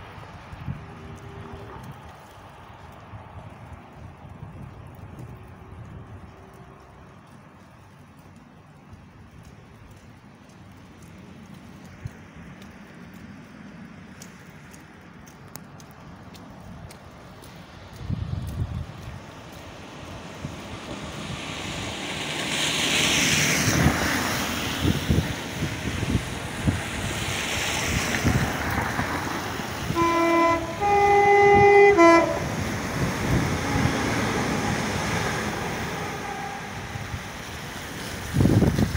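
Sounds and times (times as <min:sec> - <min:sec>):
train running on track: 0:00.0 - 0:38.9
train horn chords: 0:00.7 - 0:02.0, 0:29.9 - 0:37.2.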